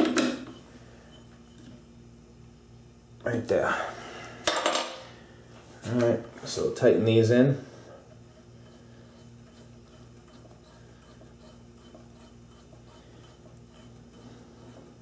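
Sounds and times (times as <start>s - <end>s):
low pulsing hum: 7.6s - 15.0s
screws ticking and rubbing: 8.1s - 15.0s.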